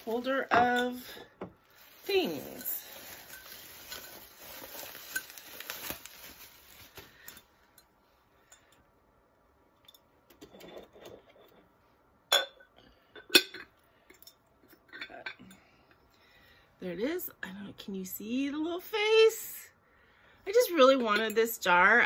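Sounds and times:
rustling: 0.0s - 7.8s.

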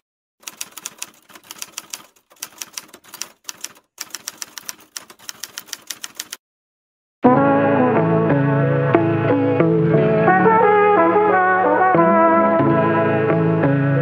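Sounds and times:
typewriter keystroke clicks: 0.4s - 6.4s
music with brass: 7.2s - 14.0s.

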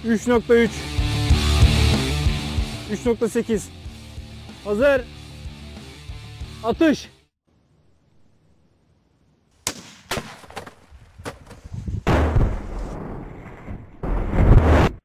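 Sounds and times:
rifle shot crack: 9.6s - 10.9s.

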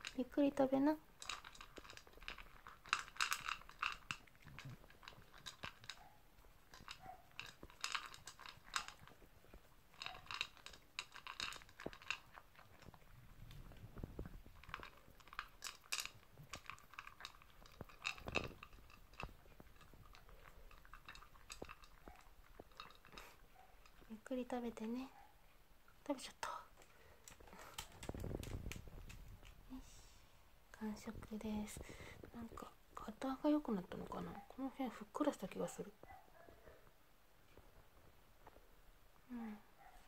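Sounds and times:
dog chewing from a bowl: 0.0s - 25.6s, 26.4s - 29.6s.

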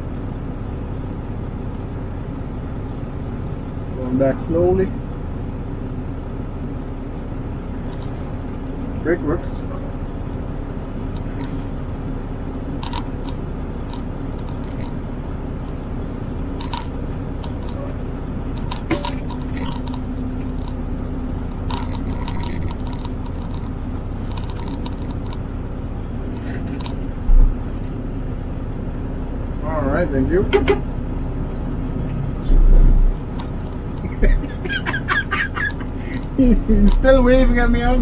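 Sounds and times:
diesel truck engine running: 0.0s - 38.0s
light clicks and rattles: 16.6s - 20.8s, 21.5s - 25.5s, 26.3s - 27.4s.

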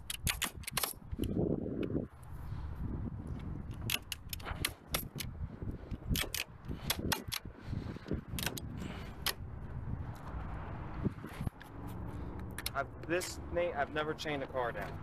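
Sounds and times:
metallic clicks of hardware: 0.0s - 1.4s, 3.4s - 5.3s, 5.9s - 7.5s, 8.1s - 9.4s
truck low rumble: 1.0s - 15.0s.

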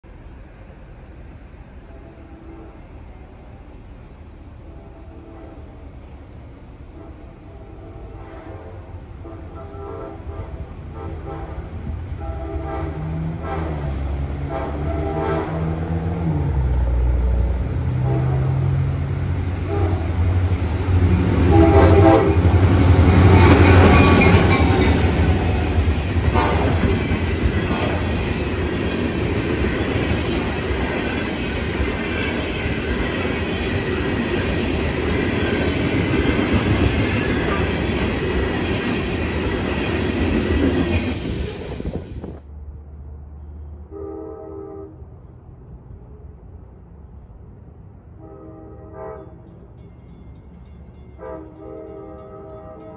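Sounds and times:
train horn blasts: 1.8s - 3.2s, 4.6s - 5.9s, 6.9s - 16.2s, 17.9s - 19.0s, 19.6s - 20.6s, 21.2s - 25.6s, 26.2s - 27.2s, 43.8s - 45.2s, 48.1s - 49.6s, 51.2s - 52.9s
train wheels clacking: 20.3s - 42.0s.

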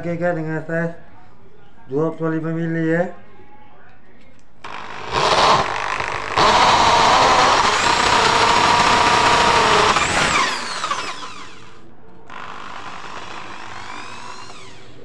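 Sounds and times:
electric drill boring into wood: 4.7s - 15.0s.

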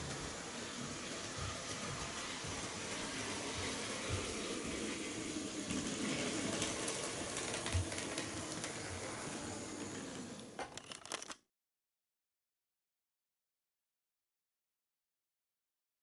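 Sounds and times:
model train motor whirring: 0.3s - 11.4s
quick run of clicks: 10.6s - 11.4s.

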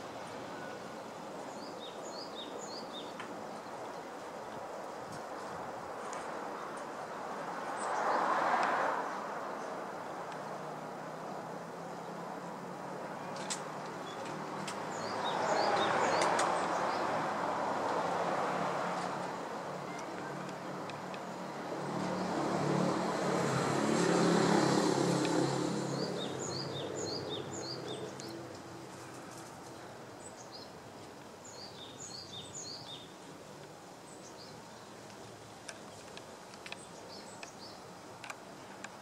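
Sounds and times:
vehicle passing: 14.3s - 29.5s
faint sharp clicks: 35.0s - 39.0s.

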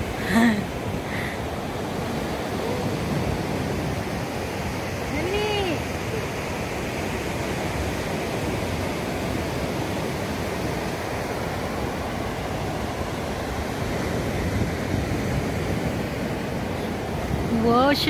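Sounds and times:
ocean surf breaking: 0.0s - 18.0s
wind buffeting microphone: 0.8s - 18.0s.

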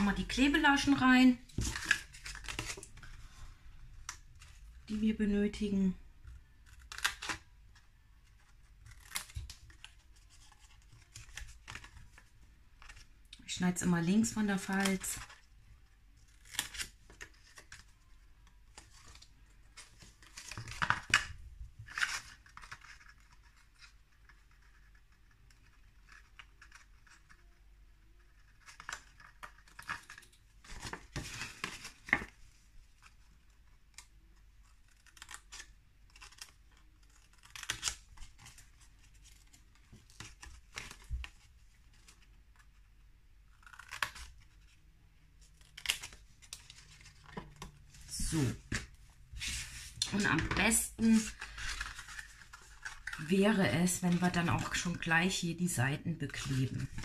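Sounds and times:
stiff card rustling: 45.5s - 55.0s.

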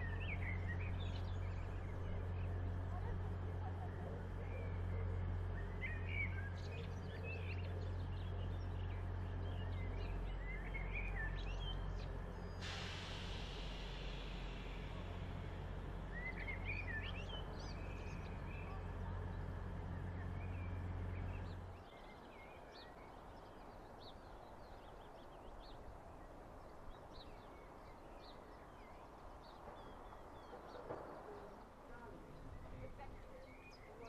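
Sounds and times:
diesel train engines idling: 0.0s - 34.0s
birds chirping and singing: 4.4s - 12.6s, 16.1s - 18.9s.

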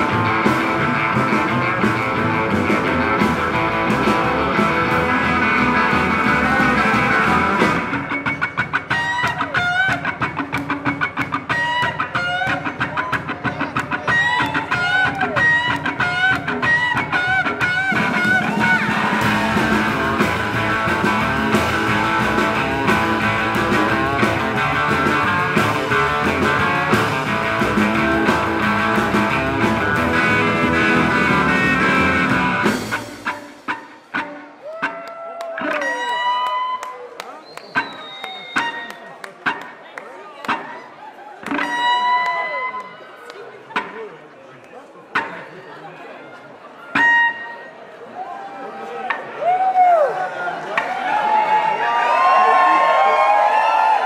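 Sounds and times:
upright bass: 0.0s - 11.7s, 13.5s - 33.4s
electric guitar lick: 0.0s - 36.9s, 41.4s - 42.9s, 46.9s - 47.5s
drums: 0.0s - 39.8s, 40.4s - 42.9s, 46.9s - 47.6s.

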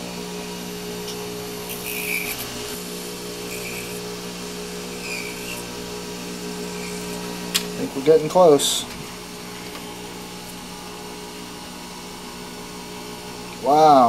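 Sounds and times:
blade scraping spinning disc: 0.0s - 10.8s
lathe motor running: 0.0s - 14.0s.

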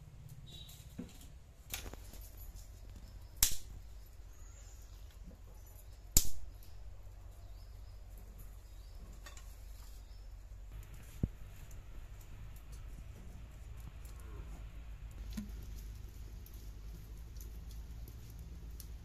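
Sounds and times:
bamboo kindling snapping: 1.0s - 2.4s, 3.0s - 3.8s, 6.1s - 6.8s.

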